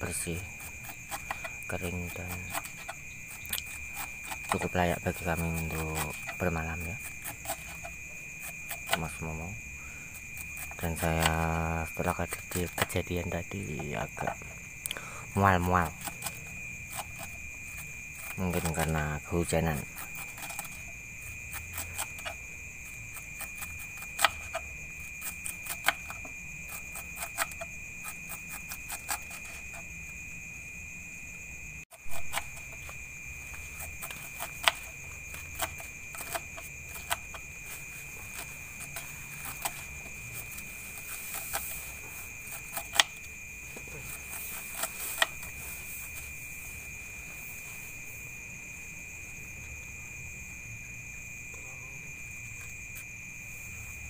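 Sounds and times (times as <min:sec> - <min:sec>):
night insects trilling: 0:00.0 - 0:54.0
knife slicing vegetable: 0:00.1 - 0:09.2, 0:32.0 - 0:32.9, 0:33.6 - 0:45.8.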